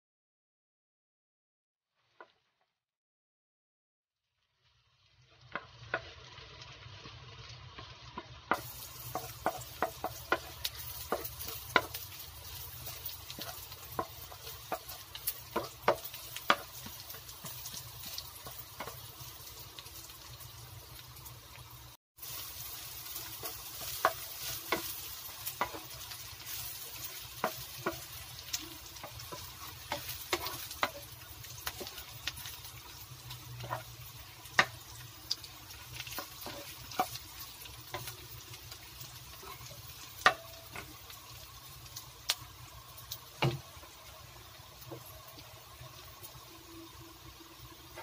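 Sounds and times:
meat sizzling in oil: 0:04.2 - 0:48.0
spatula scraping and knocking pan: 0:05.5 - 0:06.2, 0:07.8 - 0:19.6, 0:22.2 - 0:41.1, 0:43.3 - 0:44.0.

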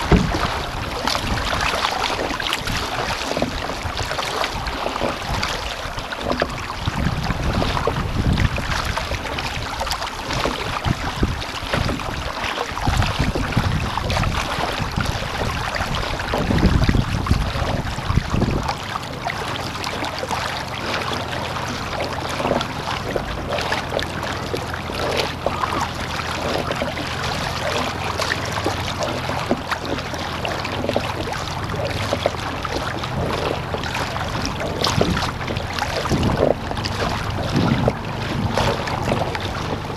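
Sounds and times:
paddle splashes: 0:00.0 - 0:39.9
steady low hum: 0:00.0 - 0:39.9
water splashing against hull: 0:00.0 - 0:39.9
wind buffeting microphone: 0:00.0 - 0:39.9.

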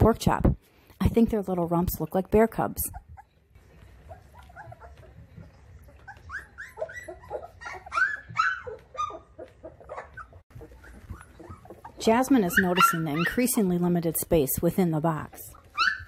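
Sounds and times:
puppies whining and squealing: 0:02.6 - 0:13.9, 0:15.3 - 0:16.0.

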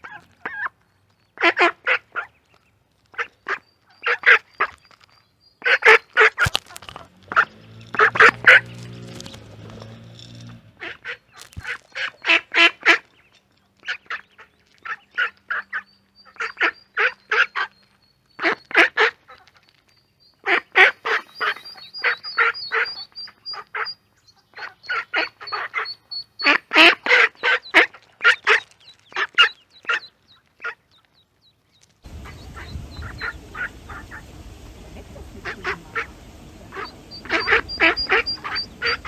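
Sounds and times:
ducklings peeping: 0:00.0 - 0:09.9, 0:10.8 - 0:39.0
duck quacking: 0:01.4 - 0:02.3, 0:05.6 - 0:06.5, 0:07.3 - 0:08.8, 0:10.8 - 0:13.0, 0:13.8 - 0:17.8, 0:18.4 - 0:19.5, 0:20.4 - 0:30.8, 0:32.1 - 0:39.0.

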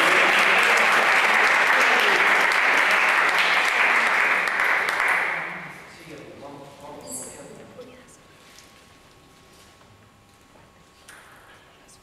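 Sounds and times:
crowd applauding: 0:00.0 - 0:05.8.

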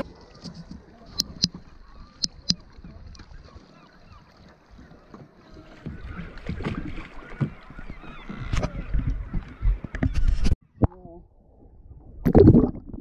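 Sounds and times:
water splashing against kayak hull: 0:00.0 - 0:10.6
wind on microphone: 0:05.6 - 0:12.9.

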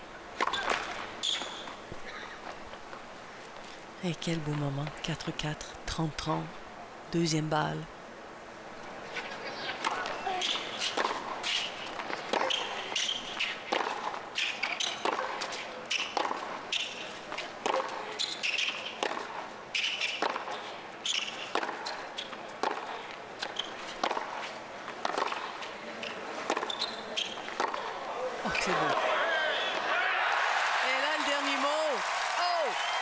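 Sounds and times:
tennis ball hit by racquet: 0:09.8 - 0:20.6, 0:21.2 - 0:22.0, 0:22.6 - 0:25.6, 0:26.4 - 0:28.0
tennis ball bouncing on court: 0:09.8 - 0:28.0.

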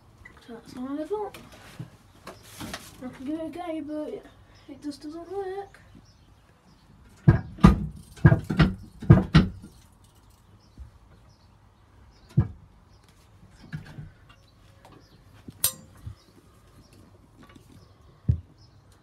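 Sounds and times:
sharp knocks and clunks: 0:07.1 - 0:09.8, 0:12.2 - 0:12.7.

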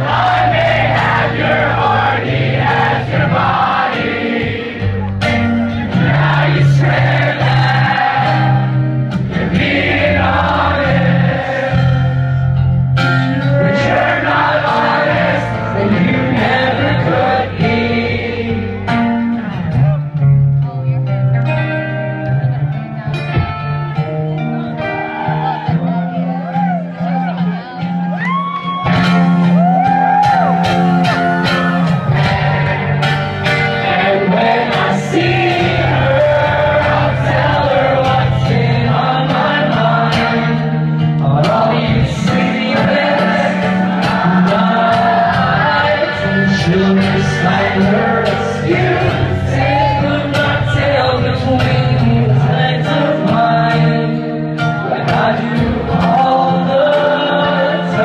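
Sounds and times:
acoustic guitar strumming: 0:00.0 - 0:58.0
man singing: 0:13.4 - 0:18.6, 0:33.8 - 0:58.0.

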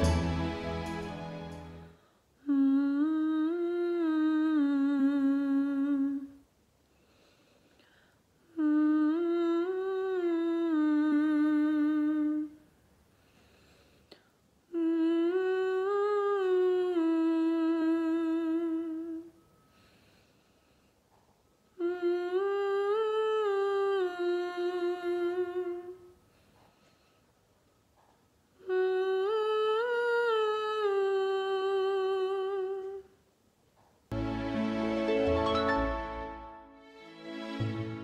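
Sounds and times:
woman humming: 0:02.4 - 0:06.4, 0:08.5 - 0:12.6, 0:14.7 - 0:19.4, 0:21.8 - 0:26.1, 0:28.6 - 0:33.2.

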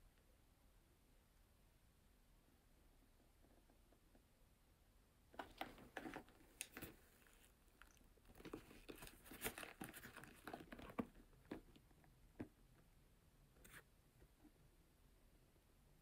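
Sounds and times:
sneaker handling crinkles: 0:05.4 - 0:11.7.

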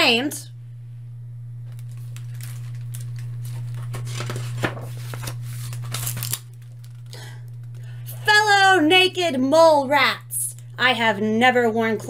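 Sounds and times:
steady low hum: 0:00.0 - 0:12.0
page snapping: 0:01.7 - 0:07.8
book pages turning: 0:01.7 - 0:07.9.

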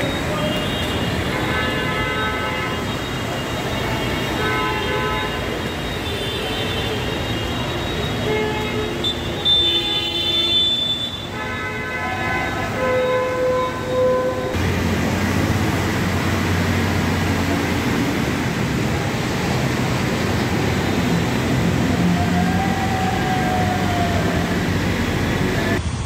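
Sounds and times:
vehicle horns honking: 0:00.0 - 0:14.9
street noise: 0:00.0 - 0:26.0.

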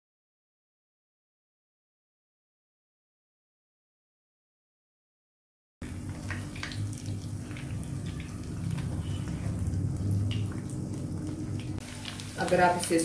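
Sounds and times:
low hum: 0:05.8 - 0:12.2
food sizzling in oil: 0:05.8 - 0:13.0.

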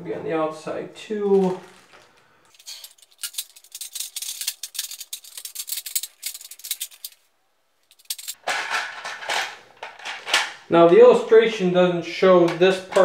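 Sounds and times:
plastic parts rattling and clicking: 0:01.3 - 0:07.2, 0:07.9 - 0:10.6, 0:12.5 - 0:13.0.

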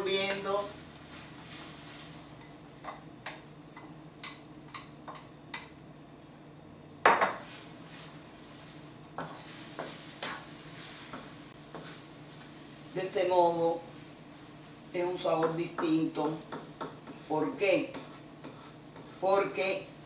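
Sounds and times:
eggs sizzling: 0:00.0 - 0:20.0
spatula tapping pan: 0:02.8 - 0:05.7, 0:09.2 - 0:12.0, 0:15.3 - 0:19.3
spatula scraping frying pan: 0:07.4 - 0:13.0, 0:13.9 - 0:19.8.

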